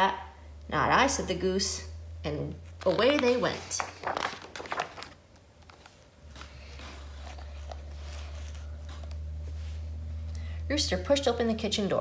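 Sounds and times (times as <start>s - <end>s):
steady low hum: 0.0s - 12.0s
paper page turning: 2.7s - 9.9s.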